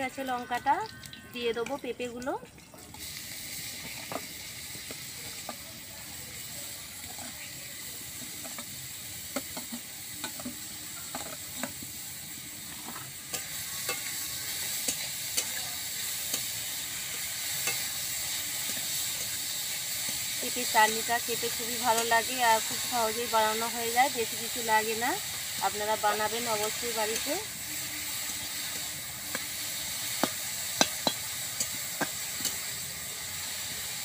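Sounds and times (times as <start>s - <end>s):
food sizzling in hot oil: 0.0s - 34.0s
spatula scraping a wok: 7.0s - 34.0s.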